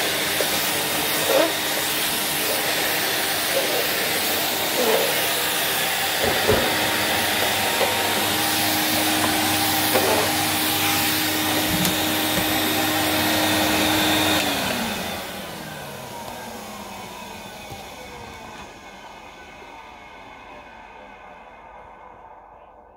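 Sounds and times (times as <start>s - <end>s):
floor tool pushed over laminate: 0.0s - 14.9s
vacuum cleaner running: 0.0s - 22.7s.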